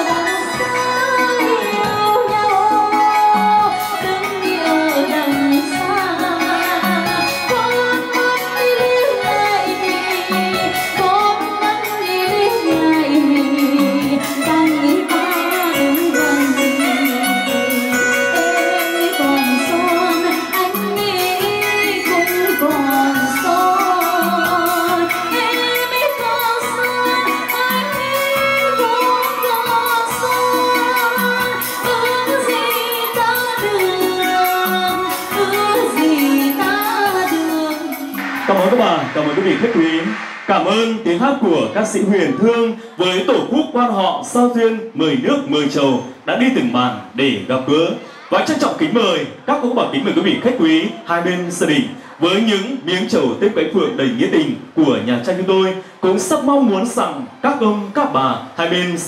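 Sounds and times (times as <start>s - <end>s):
song with singing over beat: 0.0s - 43.6s.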